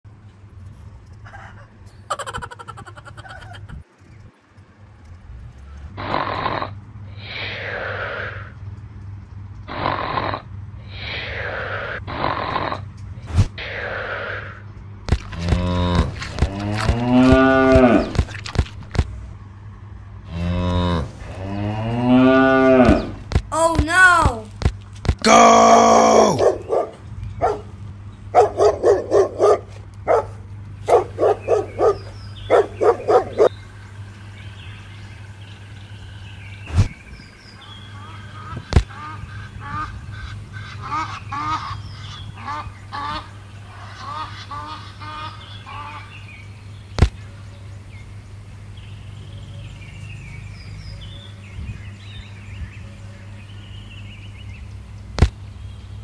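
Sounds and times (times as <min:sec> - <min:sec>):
steady low hum: 0:00.1 - 0:56.0
higher animal calls: 0:06.0 - 0:08.6.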